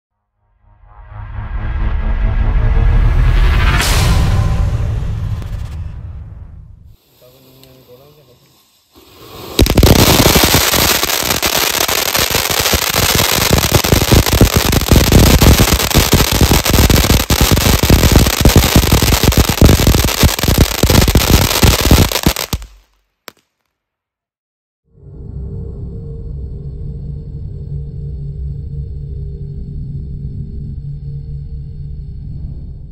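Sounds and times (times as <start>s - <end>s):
hiss of spraying sparks: 6.9s - 22.8s
firework crackling: 6.9s - 23.6s.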